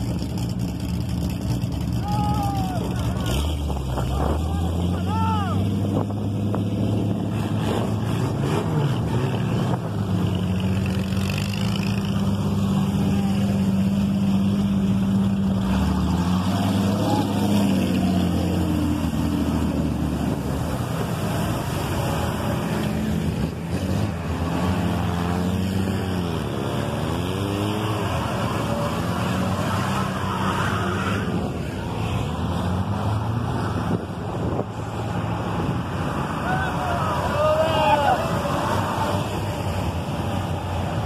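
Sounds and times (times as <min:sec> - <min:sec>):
engine revving: 0:00.0 - 0:36.4
off-road engines droning: 0:00.0 - 0:41.0
mud and water churning: 0:05.6 - 0:35.3.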